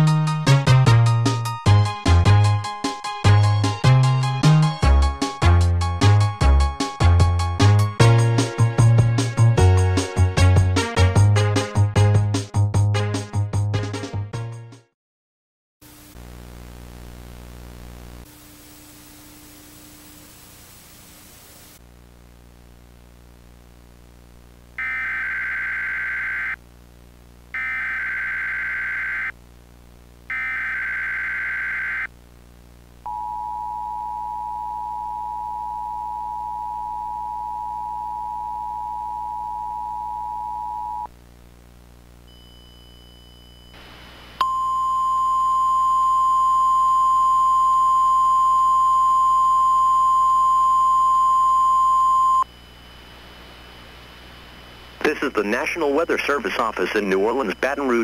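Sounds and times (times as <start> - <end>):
radio static hiss: 15.8 - 33.0, 43.8 - 44.4, 52.5 - 58.0
single-tone warning alarm: 24.8 - 26.6, 27.6 - 29.3, 30.3 - 32.1.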